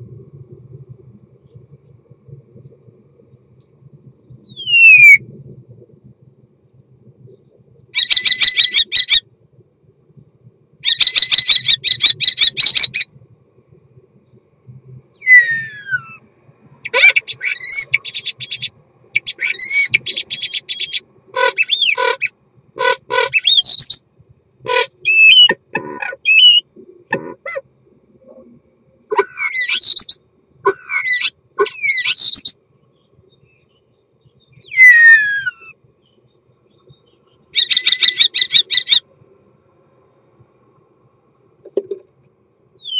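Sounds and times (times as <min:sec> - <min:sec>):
starling singing: 0:04.4 - 0:05.2, 0:08.0 - 0:09.2, 0:10.8 - 0:13.1, 0:15.2 - 0:16.2, 0:16.8 - 0:24.0, 0:24.7 - 0:27.6, 0:29.1 - 0:32.6, 0:34.4 - 0:36.2, 0:36.8 - 0:39.0
sliding whistle: 0:04.6 - 0:05.2.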